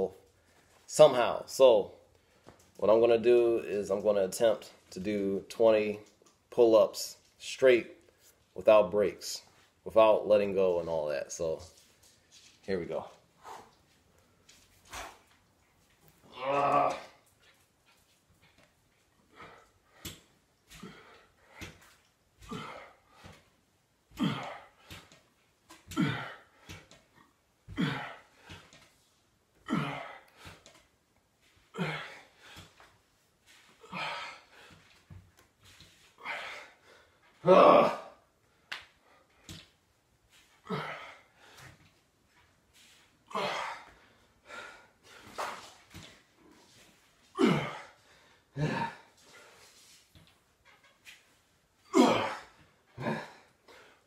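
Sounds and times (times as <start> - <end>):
man grunting and exhaling: 16.2 - 17.2, 19.3 - 21.8, 22.4 - 23.4, 24.1 - 25.2, 25.8 - 27.0, 27.7 - 28.7, 29.6 - 30.7, 31.7 - 32.8, 33.7 - 34.8, 36.1 - 36.8, 37.4 - 38.2, 40.6 - 41.6, 43.3 - 45.7, 47.3 - 49.6, 51.8 - 54.0
man grunting exhalations: 22.4 - 23.0, 24.1 - 25.0, 25.9 - 26.5, 27.7 - 28.6, 31.7 - 32.7, 37.4 - 38.2, 40.6 - 41.3, 43.3 - 43.9, 47.3 - 49.2, 51.9 - 53.5.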